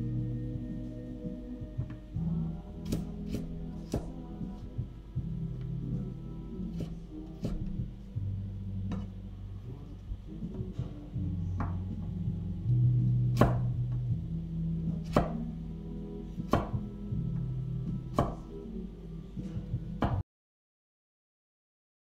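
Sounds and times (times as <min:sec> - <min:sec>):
low background music: 0:00.0 - 0:20.2
knife chopping on wooden board: 0:13.4 - 0:13.7, 0:15.0 - 0:15.4, 0:16.5 - 0:16.8, 0:18.1 - 0:18.4.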